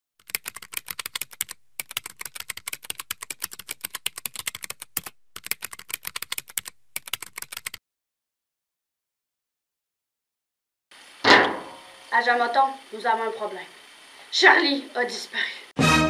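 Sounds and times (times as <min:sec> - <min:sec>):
keyboard typing clicks: 0:00.2 - 0:07.8.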